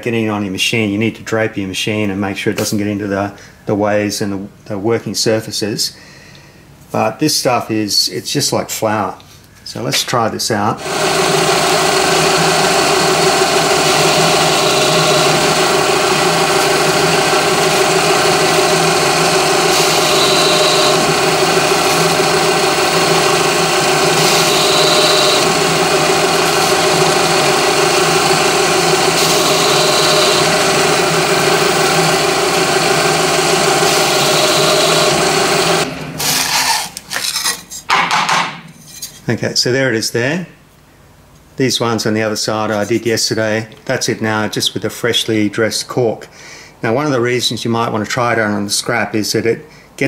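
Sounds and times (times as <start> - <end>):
milling machine motor running: 10.8 - 36.8.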